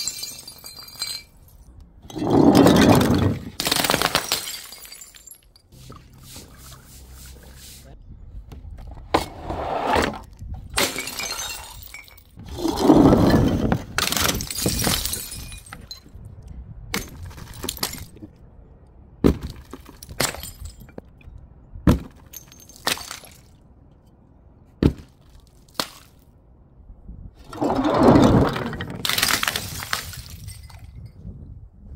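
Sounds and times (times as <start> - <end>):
glass pieces clinking: 0.0 - 3.4, 4.2 - 5.8
glass bottles shattering: 0.0 - 5.8, 10.8 - 16.2, 27.5 - 31.1.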